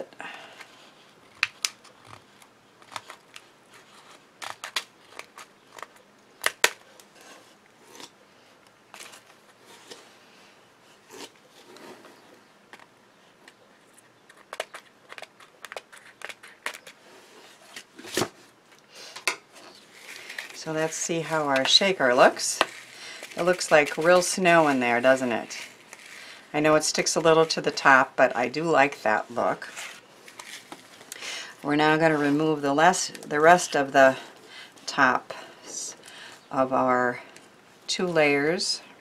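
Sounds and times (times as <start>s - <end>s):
card being handled: 13.8s - 17.0s.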